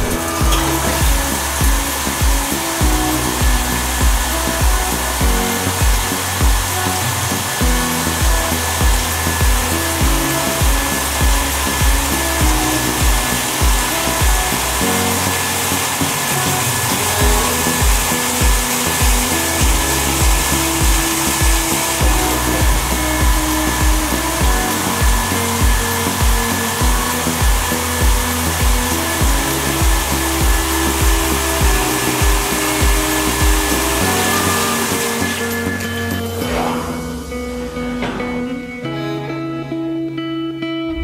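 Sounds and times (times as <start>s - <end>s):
machine whirring hiss: 0.0s - 38.6s
background music with steady beat: 0.0s - 41.0s.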